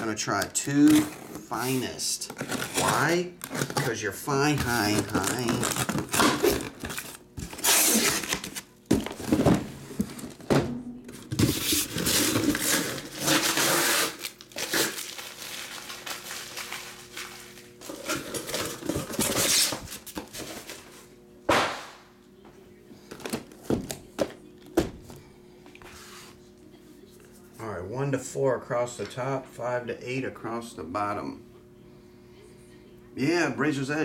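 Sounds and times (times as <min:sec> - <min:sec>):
boxes thunking on table: 0:08.9 - 0:11.7.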